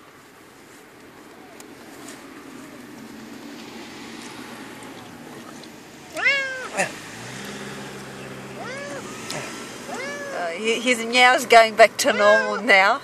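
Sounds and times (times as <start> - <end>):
cat meowing: 6.0 - 7.0, 8.3 - 10.6, 12.0 - 12.9.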